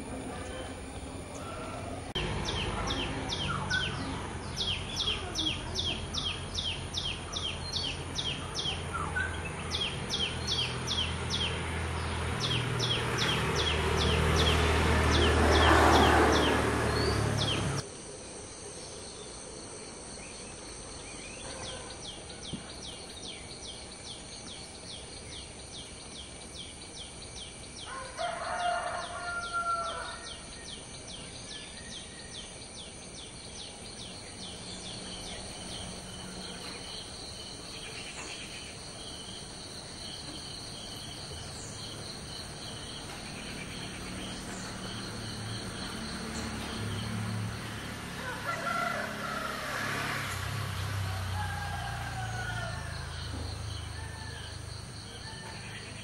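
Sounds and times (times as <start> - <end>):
rooster crowing: 27.9 - 30.4, 48.1 - 50.4, 51.0 - 55.9.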